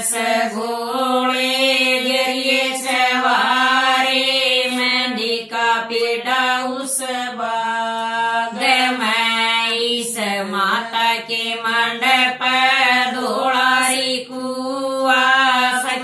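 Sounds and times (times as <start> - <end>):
women singing in unison: 0.0 - 16.0.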